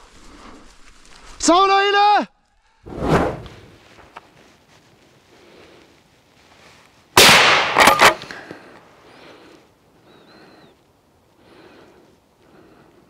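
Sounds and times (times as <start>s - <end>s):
loud rifle shot: 7.2s - 8.3s.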